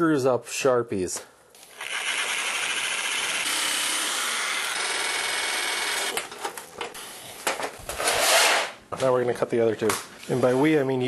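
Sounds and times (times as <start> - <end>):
electric metal cutter buzzing: 1.7 - 6.2.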